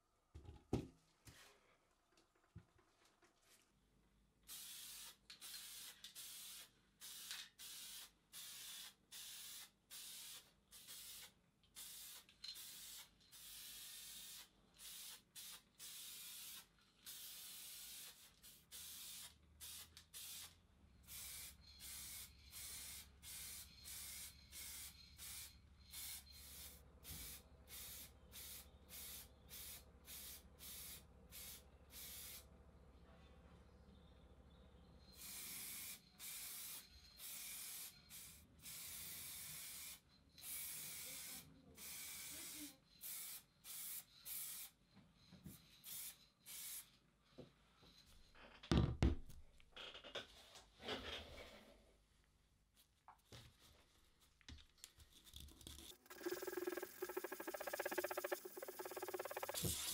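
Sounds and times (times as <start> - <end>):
spray paint hissing: 4.5 - 32.4, 35.2 - 44.7, 45.8 - 46.9, 55.8 - 59.9.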